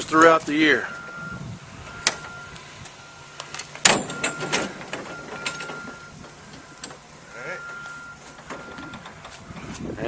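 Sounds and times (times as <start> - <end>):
knocks and clatter: 3.6 - 7.1.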